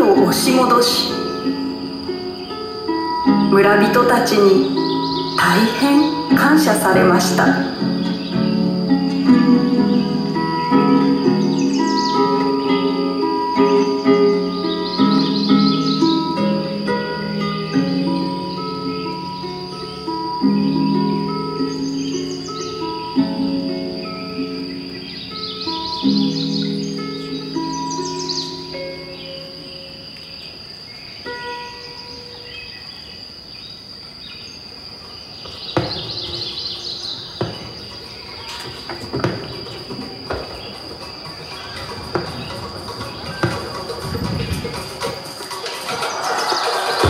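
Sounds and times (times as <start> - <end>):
slow sustained background music: 0.0 - 33.7
crickets chirping: 0.0 - 47.0
fireworks banging and crackling: 37.3 - 47.0.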